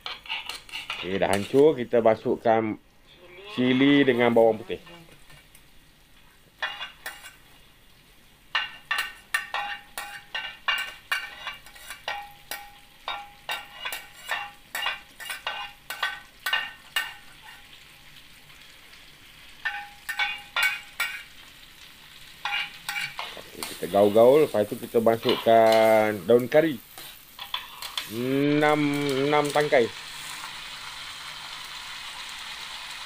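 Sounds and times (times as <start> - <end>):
spatula scraping cutting board: 0.0 - 1.6
butter sizzling: 0.0 - 33.0
metal spatula clinking: 6.6 - 7.4, 8.5 - 17.7, 19.6 - 21.3, 22.4 - 26.2, 27.0 - 28.1.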